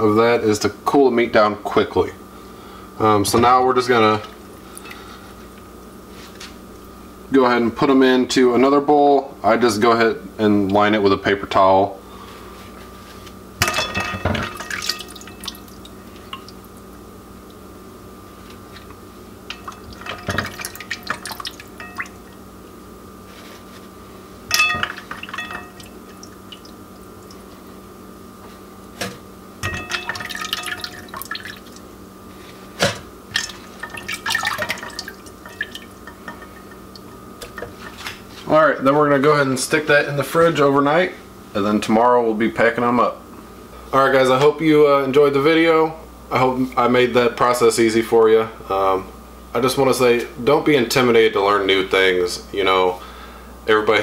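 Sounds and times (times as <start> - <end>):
faint steady hum: 0.0 - 54.0
water dripping and splashing: 14.4 - 16.8, 19.5 - 22.4, 24.5 - 27.5, 29.8 - 31.8, 33.3 - 37.1.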